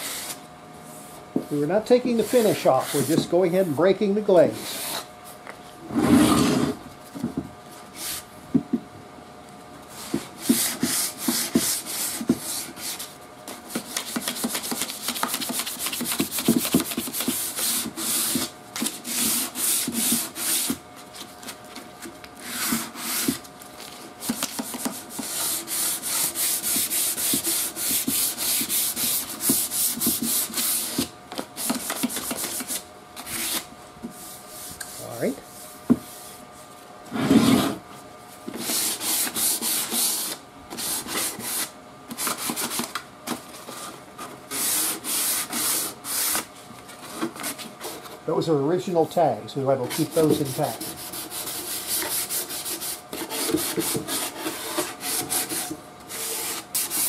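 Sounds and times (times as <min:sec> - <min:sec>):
sandpaper rubbing on wood: 0:02.1 - 0:03.2, 0:10.0 - 0:13.1, 0:13.7 - 0:20.8, 0:22.4 - 0:23.4, 0:24.2 - 0:33.6, 0:38.6 - 0:42.8, 0:44.5 - 0:46.5, 0:49.9 - 0:57.0.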